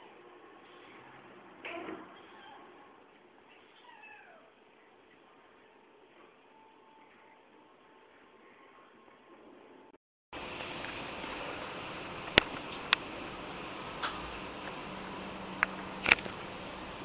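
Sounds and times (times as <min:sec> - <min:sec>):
insects chirping: 0:10.4 - 0:17.0
sharp clicks: 0:10.6 - 0:17.0.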